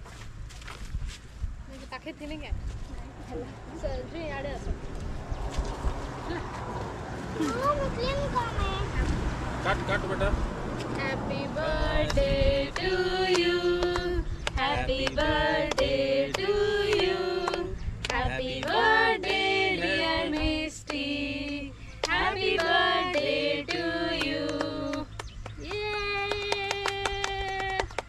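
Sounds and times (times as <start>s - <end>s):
women singing together: 11.0s - 25.9s
hands clapping: 12.8s - 19.4s, 20.3s - 28.0s.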